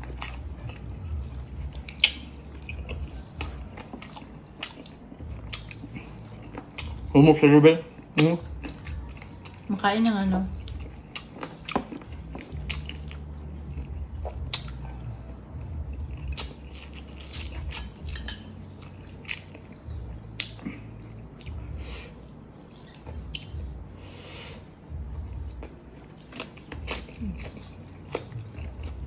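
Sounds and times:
wet chewing: 0:00.0 - 0:07.1, 0:07.8 - 0:23.7, 0:24.9 - 0:29.0
mouth clicks and smacks: 0:01.9 - 0:02.3.

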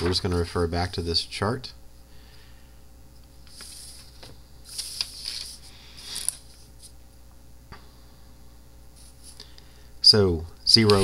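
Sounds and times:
paper rustling: 0:03.4 - 0:06.9, 0:10.8 - 0:11.0.

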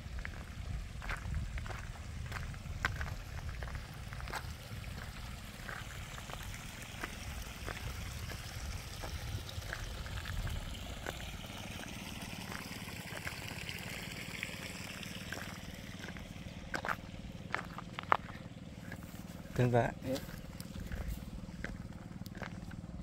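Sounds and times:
low rumble: 0:00.0 - 0:19.6
water trickling: 0:00.0 - 0:23.0.

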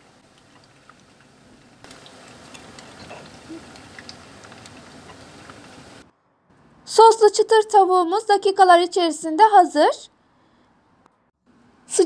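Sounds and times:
chicken deep-frying in hot oil: 0:00.0 - 0:06.1.

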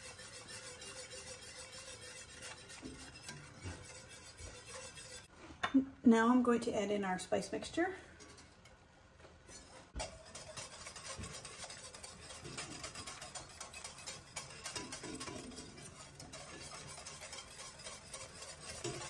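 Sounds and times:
whisk ticking against a pot: 0:00.0 - 0:05.3, 0:09.9 - 0:19.0.

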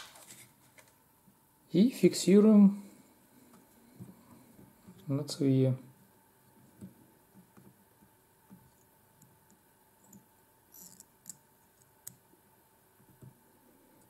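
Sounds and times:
faint clicks and taps: 0:13.0 - 0:13.4.

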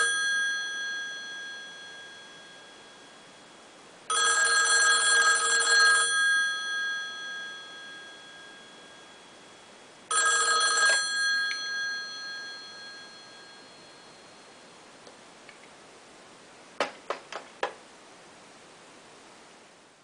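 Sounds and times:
telephone bell ringing: 0:00.0 - 0:03.5, 0:04.1 - 0:14.6.

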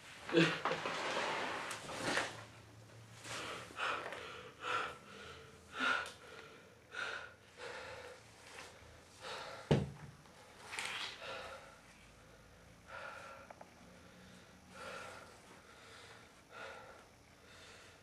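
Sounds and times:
man breathing heavily: 0:03.2 - 0:18.0.

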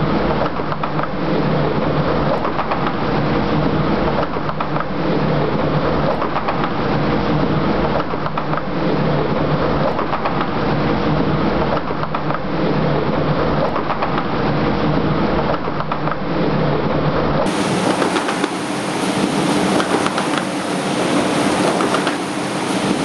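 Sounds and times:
die-cutting machine din: 0:17.4 - 0:23.0.

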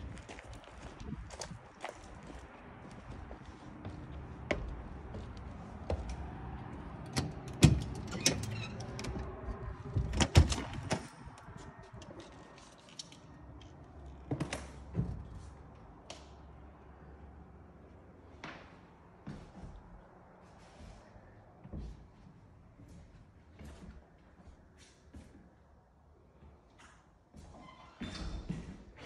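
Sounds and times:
footsteps on wooden stairs: 0:00.1 - 0:06.9.

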